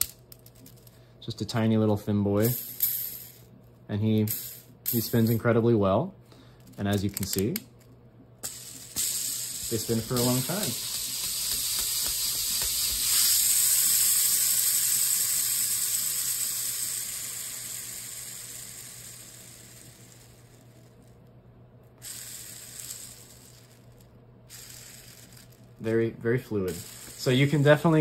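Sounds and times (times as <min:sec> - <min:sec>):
ball bearing spinning whir: 0:08.4 - 0:21.2, 0:21.9 - 0:28.0.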